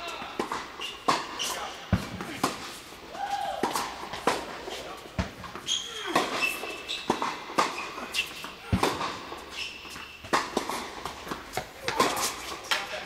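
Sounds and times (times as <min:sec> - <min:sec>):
sneakers squeaking on court: 0:00.0 - 0:02.4, 0:04.1 - 0:12.6
racquets striking tennis ball: 0:00.0 - 0:02.9, 0:03.5 - 0:13.0
ball bouncing on court: 0:08.4 - 0:09.3.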